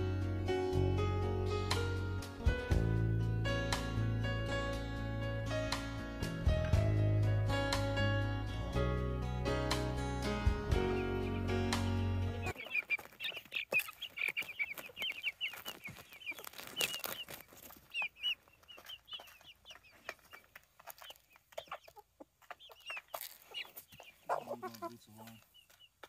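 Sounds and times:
chicks peeping and chirping: 10.4 - 26.0
chickens clucking softly: 12.4 - 26.0
beaks pecking at corn: 12.5 - 26.0.

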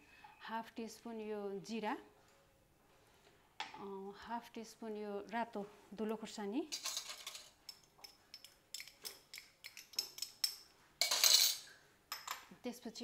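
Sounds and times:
spoon clinking against glass bowls: 6.7 - 12.4.

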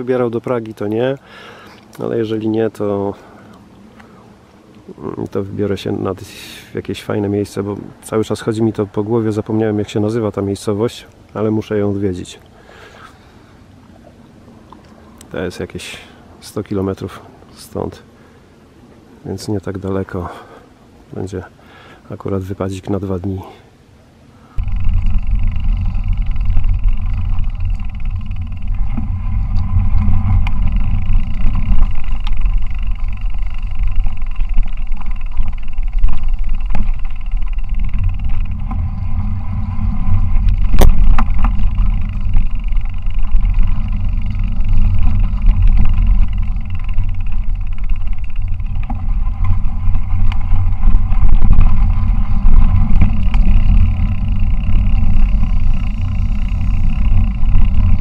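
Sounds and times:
bike tyres rolling on dirt: 0.0 - 20.4, 24.5 - 58.0
wind buffeting microphone: 24.6 - 58.0.

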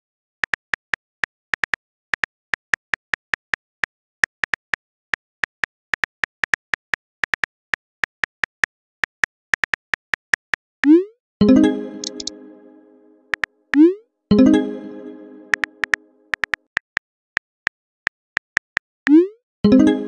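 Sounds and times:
phone keyboard clicks: 12.0 - 12.3.

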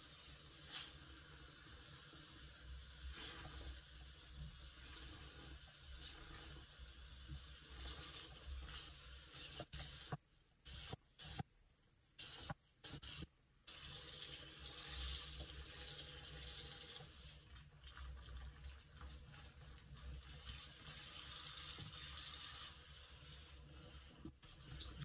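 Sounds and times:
tap water running into sink: 12.2 - 22.8.

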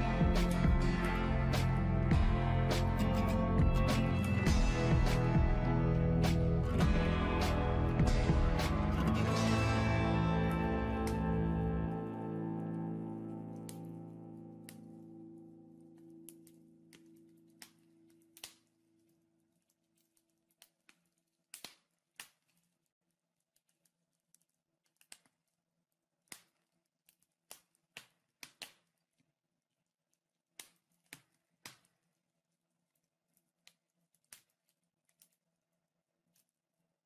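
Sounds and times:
music: 0.0 - 19.2
wood fire crackling: 0.0 - 25.6.

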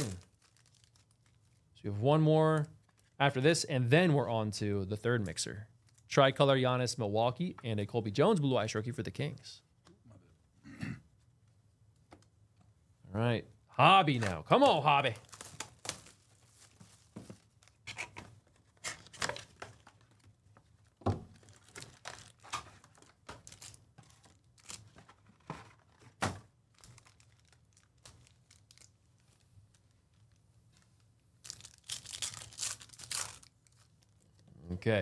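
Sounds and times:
shrink-wrap tearing: 0.0 - 1.4, 14.1 - 16.8, 21.3 - 29.4, 31.4 - 34.0
wrapper and cardboard rustling: 0.0 - 1.7, 14.1 - 34.2
foil pack tearing: 31.5 - 33.5.

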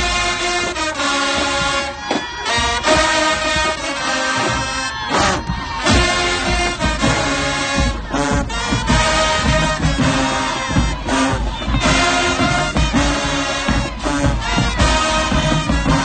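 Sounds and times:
marching band playing: 0.0 - 16.0.

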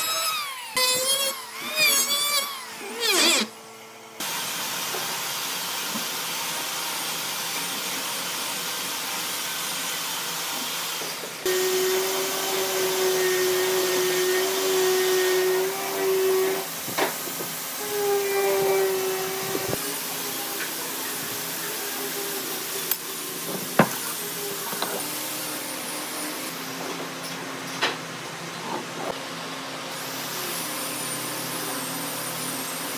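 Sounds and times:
electric hand planer cutting: 11.4 - 16.7.

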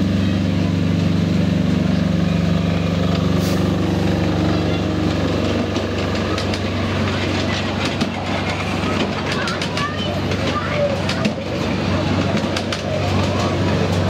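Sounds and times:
small diesel engine running: 0.0 - 14.0
train wheels clicking over track: 3.0 - 14.0.

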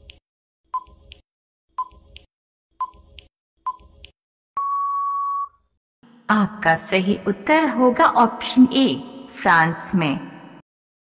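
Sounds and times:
long steady beep: 4.6 - 5.6
short beeps: 4.6 - 5.6.

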